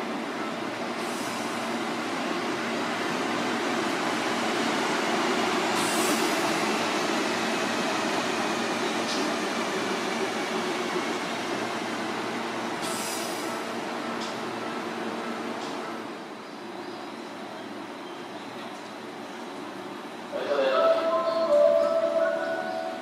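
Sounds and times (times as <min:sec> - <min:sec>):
electric train rumbling past: 0:19.0 - 0:23.0.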